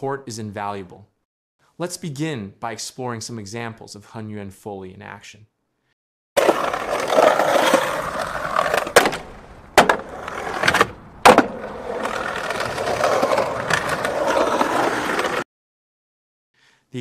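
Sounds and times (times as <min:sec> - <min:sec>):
skateboard clacking on ground: 0:06.4 - 0:15.4
skateboard wheels rolling on concrete: 0:06.4 - 0:15.4.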